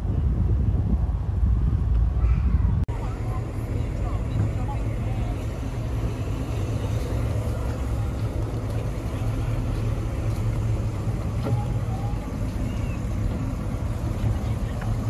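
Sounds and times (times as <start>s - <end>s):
faint voices: 2.2s - 15.0s
car engine idling: 2.9s - 15.0s.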